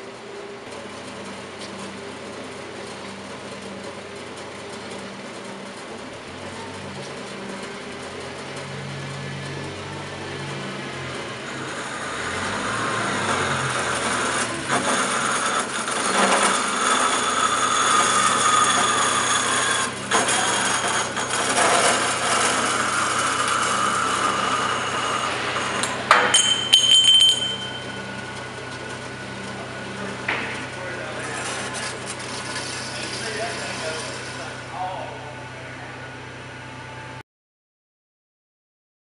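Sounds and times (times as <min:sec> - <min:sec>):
saw motor hum: 0:00.0 - 0:37.2
band saw blade cutting steel: 0:10.4 - 0:34.7.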